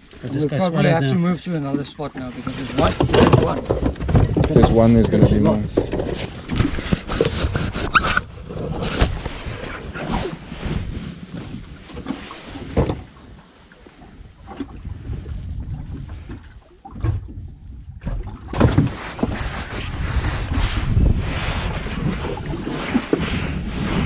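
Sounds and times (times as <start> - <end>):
sea noise: 6.1 - 24.0
wind buffeting microphone: 14.0 - 24.0.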